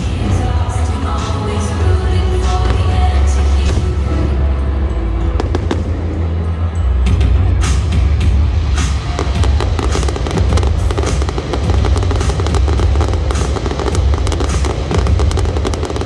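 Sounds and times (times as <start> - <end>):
fireworks crackling and popping: 8.6 - 16.0.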